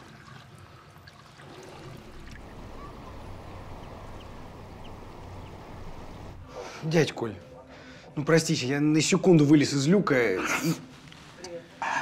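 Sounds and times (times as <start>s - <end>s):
water running and splashing: 0.0s - 6.5s
low hum: 1.8s - 6.5s.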